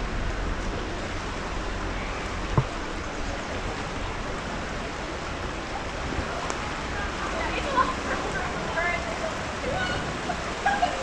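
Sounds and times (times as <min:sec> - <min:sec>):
river water flowing: 0:00.0 - 0:11.0
short thump: 0:02.5 - 0:02.8.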